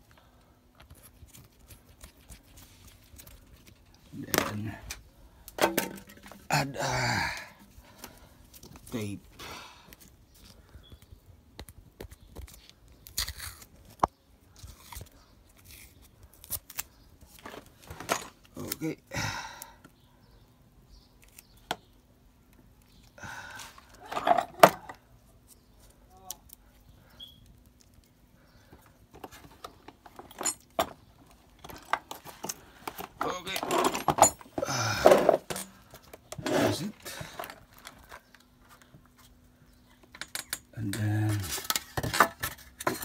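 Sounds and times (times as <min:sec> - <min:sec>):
hands handling tape: 0:00.8 - 0:06.4, 0:09.9 - 0:18.8, 0:21.1 - 0:24.1.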